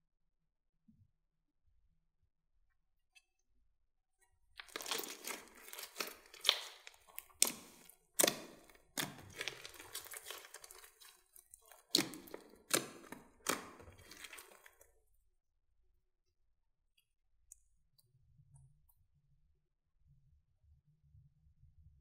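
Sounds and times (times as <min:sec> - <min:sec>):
slime crackling and crunching: 0:04.6 - 0:14.8
slime popping: 0:04.6 - 0:14.8.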